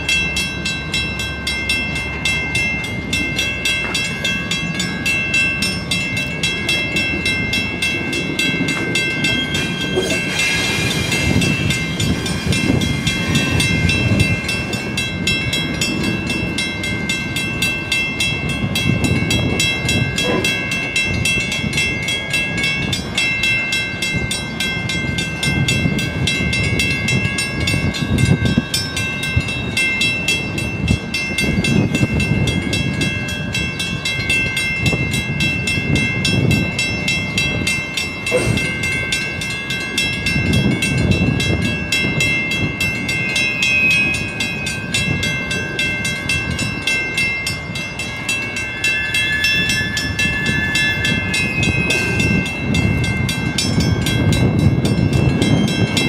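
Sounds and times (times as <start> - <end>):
crossing bell ringing: 0.0 - 56.0
train wheels clacking over rail joints: 36.6 - 41.8.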